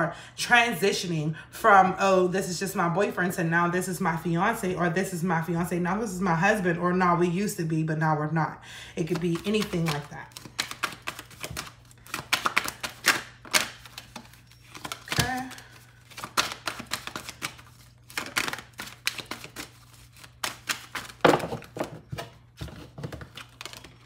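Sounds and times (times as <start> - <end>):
cards being shuffled: 9.0 - 24.0.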